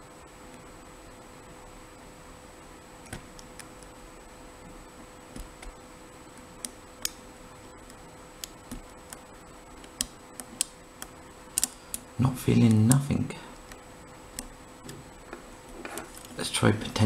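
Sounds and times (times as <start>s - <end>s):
faint steady hum: 0.0s - 17.0s
lock pick metallic ticks: 9.8s - 12.0s.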